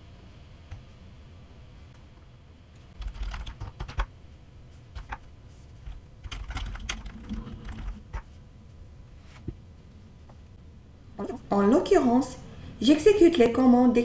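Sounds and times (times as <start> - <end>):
typing on computer keyboard: 3.0 - 4.1, 5.8 - 8.2.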